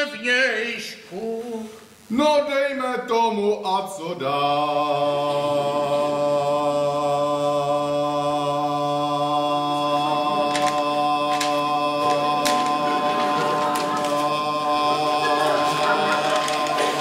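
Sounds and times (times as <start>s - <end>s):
man singing long note: 4.0s - 17.0s.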